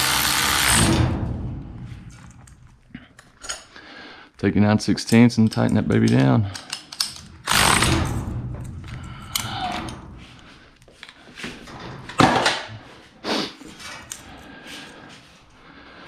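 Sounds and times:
cordless ratchet running: 0:07.4 - 0:08.0.

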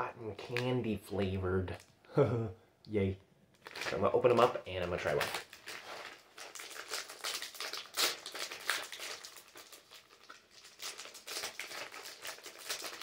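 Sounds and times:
plastic wrapping crinkling: 0:03.5 - 0:13.0.

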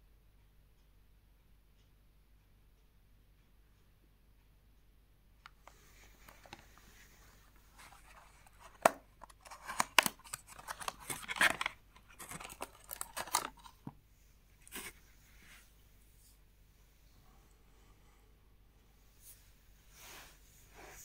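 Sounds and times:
paper rustling: 0:05.7 - 0:13.9, 0:14.6 - 0:15.0.

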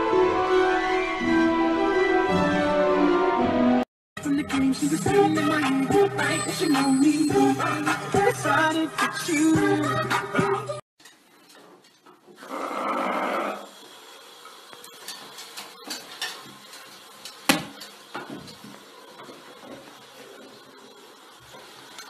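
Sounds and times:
tap water running into washbasin: 0:13.6 - 0:22.0.

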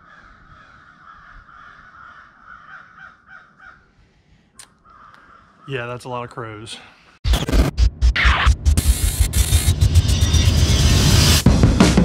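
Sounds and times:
crows cawing: 0:00.0 - 0:06.0.

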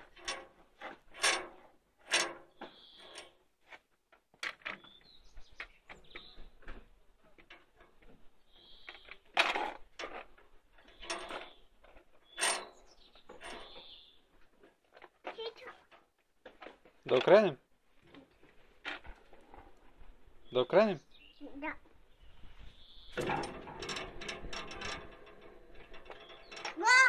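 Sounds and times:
wheel clicking and rattling: 0:23.2 - 0:27.0.

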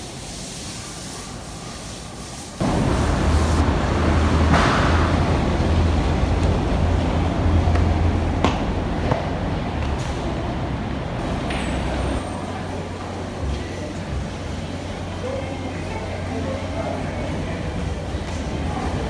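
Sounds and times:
city background rumble: 0:02.6 - 0:14.2.

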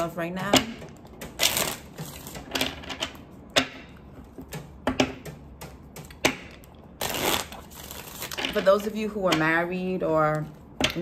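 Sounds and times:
cards rustling: 0:07.0 - 0:08.4.

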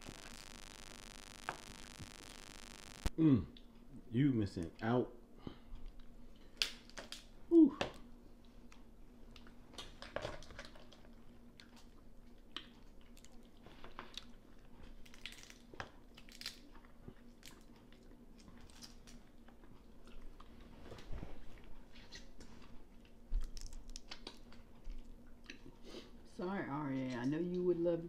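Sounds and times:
soft chewing: 0:05.4 - 0:07.2, 0:07.9 - 0:26.2
crab shell cracking: 0:23.4 - 0:24.5.

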